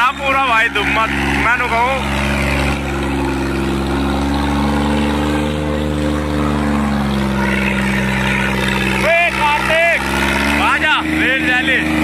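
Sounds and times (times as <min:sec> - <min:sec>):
diesel tractor engine under load: 0:00.0 - 0:12.0.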